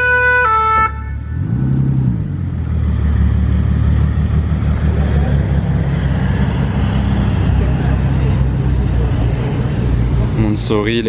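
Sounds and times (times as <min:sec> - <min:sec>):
two-tone ambulance siren: 0:00.0 - 0:01.6
car engine rumble pulling away: 0:00.9 - 0:11.0.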